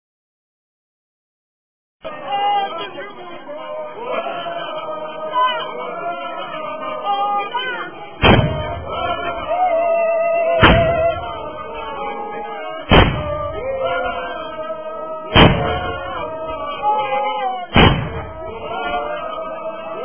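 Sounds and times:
group singing: 0:02.0 - 0:20.0
heavy drum strikes: 0:08.2 - 0:09.2, 0:10.6 - 0:11.3, 0:12.9 - 0:13.6, 0:15.3 - 0:16.2, 0:17.7 - 0:18.4.

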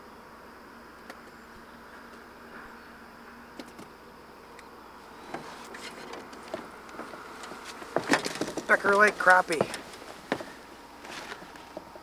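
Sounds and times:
insect-like hum: 0:00.0 - 0:12.0
light clicks and knocks: 0:05.3 - 0:11.9.

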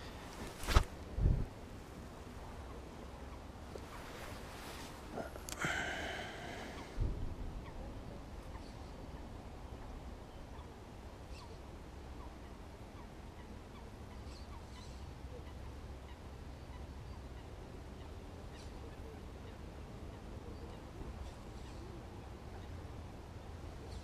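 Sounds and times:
low wind rumble on microphone: 0:00.0 - 0:05.4, 0:06.4 - 0:11.1.

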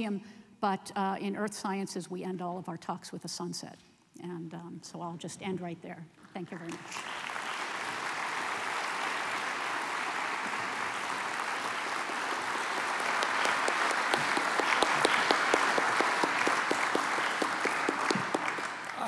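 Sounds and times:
audience applauding: 0:06.6 - 0:19.0
single sharp claps: 0:06.7 - 0:19.0.

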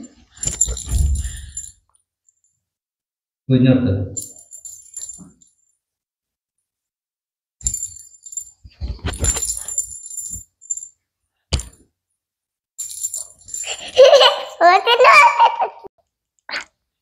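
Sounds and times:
jingle bell toy ball jingling: 0:00.4 - 0:01.8, 0:04.2 - 0:05.5, 0:07.6 - 0:10.9, 0:12.8 - 0:14.4.

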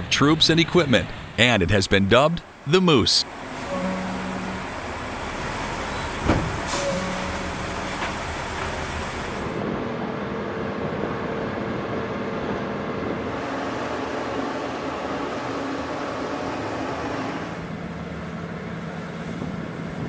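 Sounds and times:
truck diesel engine running: 0:00.0 - 0:10.1
flight-line noise: 0:00.0 - 0:20.0.

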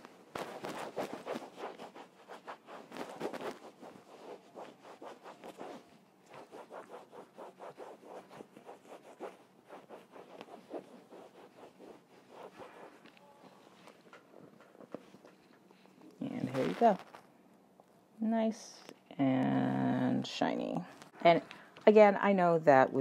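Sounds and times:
cloth rubbing on canvas: 0:00.0 - 0:15.4, 0:16.2 - 0:17.2.

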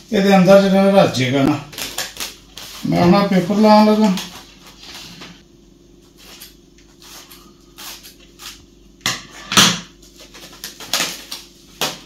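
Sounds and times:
cling film ripping: 0:01.7 - 0:02.9.

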